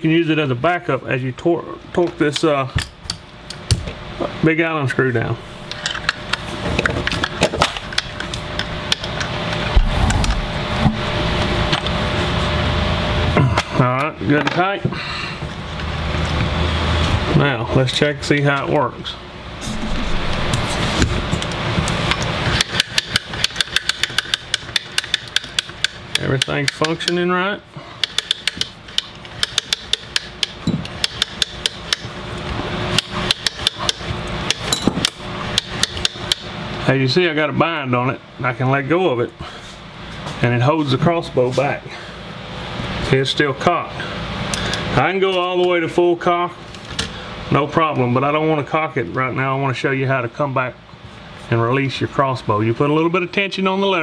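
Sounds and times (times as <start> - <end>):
metal clicks and scrapes of wrench: 28.0 - 32.1.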